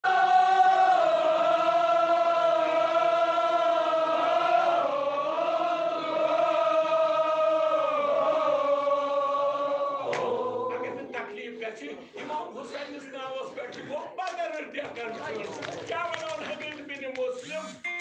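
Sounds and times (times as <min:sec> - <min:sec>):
men chanting in long held notes: 0:00.0 - 0:11.5.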